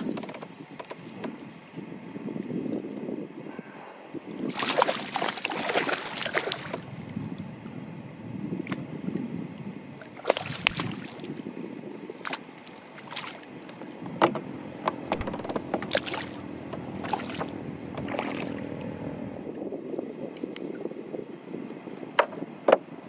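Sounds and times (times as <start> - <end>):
wind: 0.0 - 23.0
lapping water: 4.4 - 6.9, 17.0 - 19.0
splashes and knocks on kayak: 4.5 - 7.0, 14.1 - 18.6.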